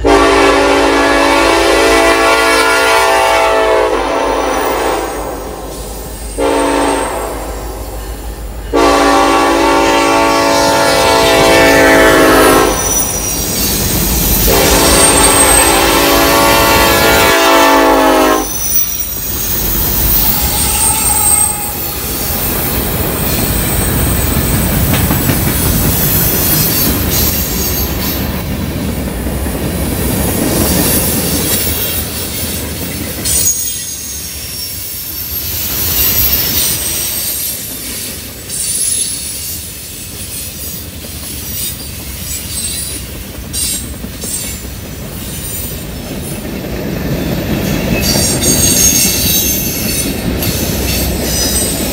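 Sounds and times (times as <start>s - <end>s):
locomotive horn: 0.0s - 13.2s, 14.4s - 18.8s, 20.1s - 22.4s
train wheels rumbling on rail: 0.0s - 51.9s
high wheel squeal: 12.6s - 15.9s, 18.4s - 24.9s, 25.8s - 28.4s, 33.2s - 44.6s, 47.6s - 51.9s.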